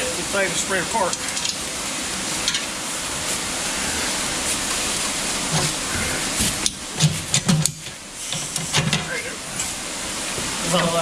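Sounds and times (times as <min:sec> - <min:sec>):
loud steady hiss: 0:00.0 - 0:11.0.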